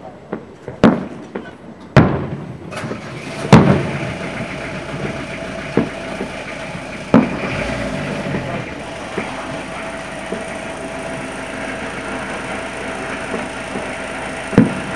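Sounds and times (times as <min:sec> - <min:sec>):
background hum: 0:00.0 - 0:14.9
distant fireworks booms: 0:00.3 - 0:14.9.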